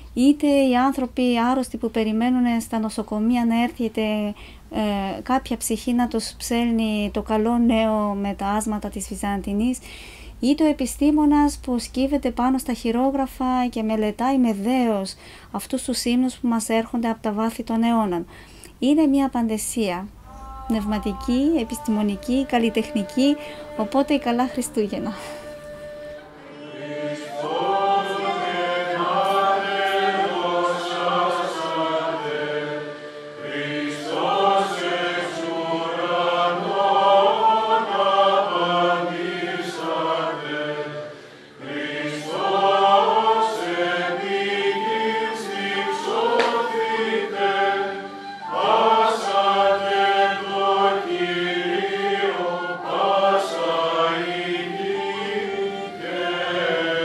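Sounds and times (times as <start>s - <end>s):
mixed choir chanting a hymn: 20.2s - 57.0s.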